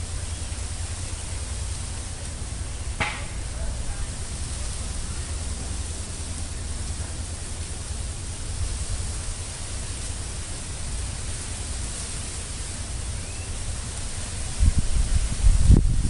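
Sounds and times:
wind noise on microphone: 2.6s - 16.0s.

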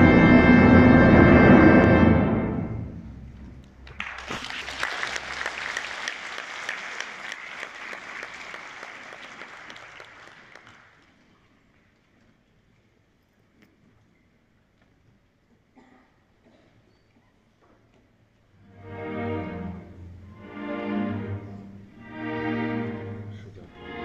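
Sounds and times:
orchestra sustained chord: 0.0s - 3.6s, 18.7s - 24.0s
audience applauding: 3.8s - 11.6s.

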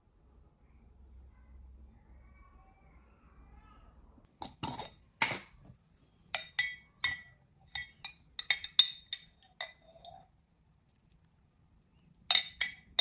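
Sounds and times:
spoon clinking against dishes: 6.3s - 10.3s, 12.3s - 13.0s.

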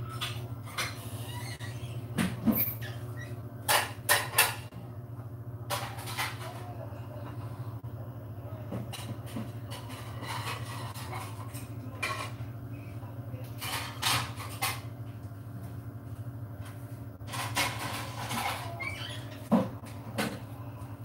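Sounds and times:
steady low hum: 0.0s - 21.0s
dishes and cutlery clattering: 3.7s - 4.7s, 8.8s - 12.5s, 13.5s - 14.9s, 17.3s - 20.4s.

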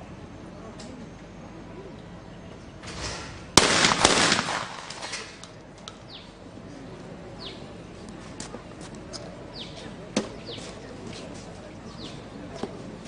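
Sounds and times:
shotgun shot with ringing tail: 2.9s - 5.4s.

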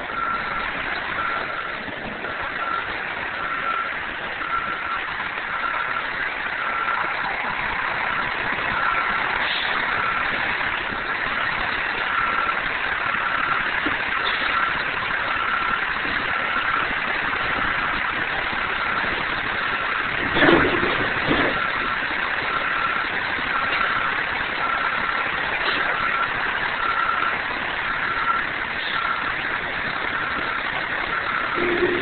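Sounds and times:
street noise: 0.0s - 32.0s
truck engine idling: 0.0s - 32.0s
high electronic beep: 31.6s - 32.0s.

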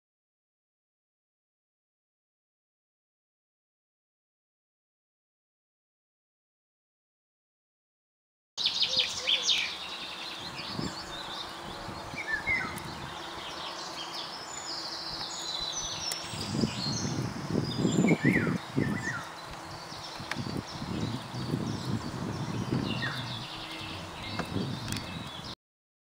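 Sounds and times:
outdoor background noise: 8.6s - 25.6s
songbirds chirping: 8.6s - 25.6s.

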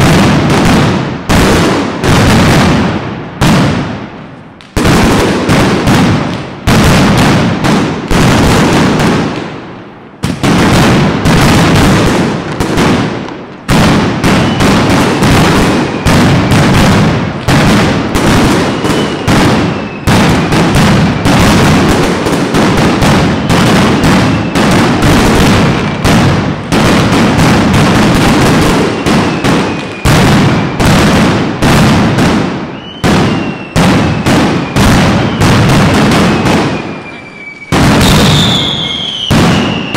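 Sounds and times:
firecrackers exploding: 0.0s - 39.9s
falling whistles: 18.7s - 20.1s, 24.2s - 24.7s, 32.7s - 33.8s, 34.6s - 35.5s, 36.3s - 39.9s.

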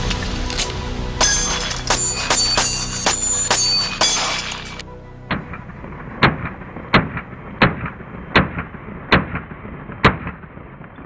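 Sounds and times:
pistol shots: 6.2s - 11.0s.

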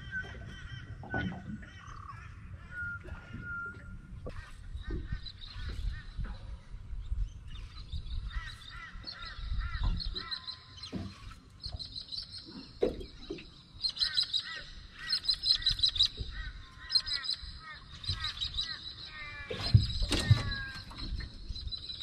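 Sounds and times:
birds chirping: 0.0s - 22.0s.

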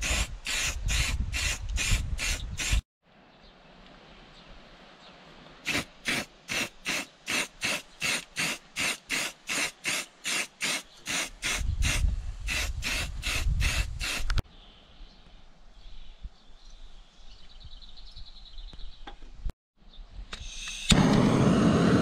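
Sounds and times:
spray can hissing bursts: 0.0s - 2.8s, 5.7s - 14.4s.

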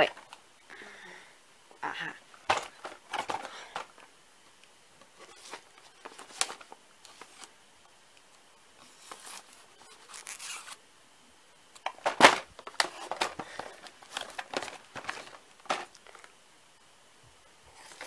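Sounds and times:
cardboard crackling: 5.2s - 7.5s, 8.8s - 10.8s, 11.8s - 16.3s.

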